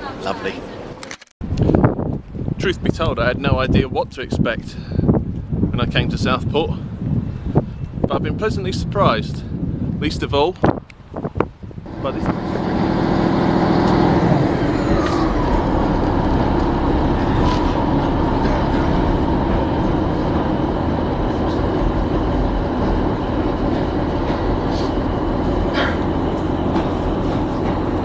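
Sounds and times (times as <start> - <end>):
train wheels rumbling: 11.2 - 28.0.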